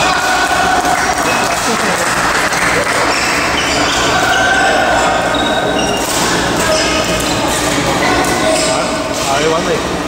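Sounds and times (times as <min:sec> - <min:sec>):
players' voices: 0:00.0 - 0:10.0
sneakers squeaking on court: 0:02.5 - 0:08.8
rackets striking shuttlecocks: 0:05.9 - 0:09.3.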